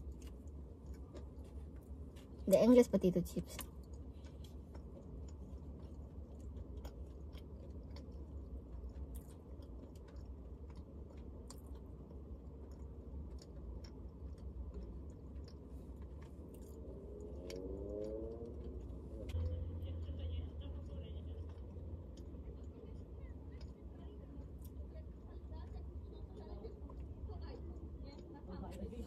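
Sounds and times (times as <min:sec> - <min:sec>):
person chewing food: 0:00.0 - 0:02.5, 0:03.5 - 0:20.1, 0:20.7 - 0:24.8
steady low hum: 0:00.0 - 0:29.0.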